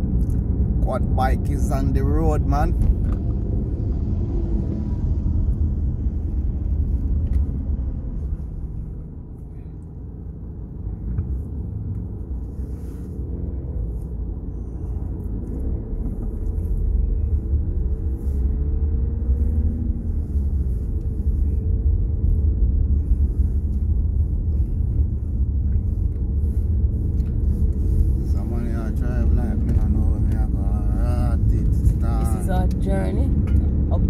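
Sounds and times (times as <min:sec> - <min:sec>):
car engine and road rumble: 0:00.0 - 0:34.0.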